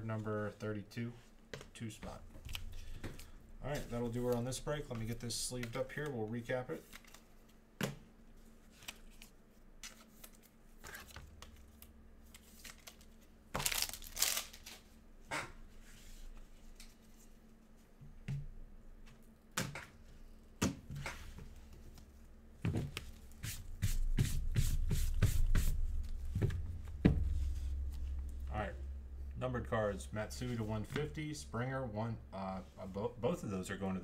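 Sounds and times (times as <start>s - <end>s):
plastic card sleeves crinkling: 8.6s - 14.9s
low bumps on a desk: 26.3s - 27.7s.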